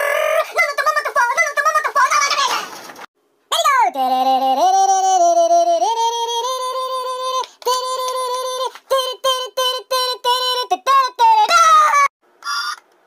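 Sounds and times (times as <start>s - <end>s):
person vocalizing high notes: 0.0s - 2.0s, 3.5s - 12.1s.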